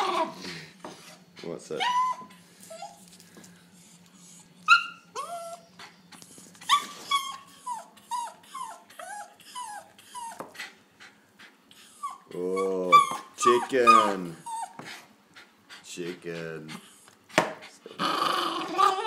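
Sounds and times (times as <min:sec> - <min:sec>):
dog whining: 0:00.0 - 0:03.1, 0:03.9 - 0:10.5, 0:11.8 - 0:15.0, 0:17.8 - 0:19.0.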